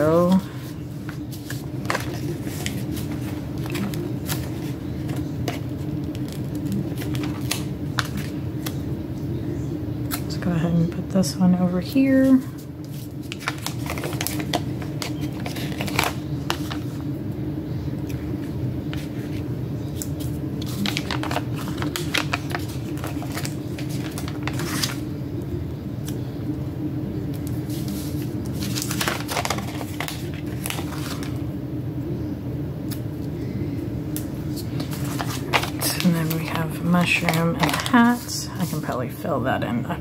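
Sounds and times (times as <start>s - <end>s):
low hum: 0.0s - 40.0s
paper crinkling and rustling: 0.2s - 8.9s, 12.1s - 17.0s, 18.4s - 25.1s, 27.4s - 31.4s, 34.5s - 39.0s.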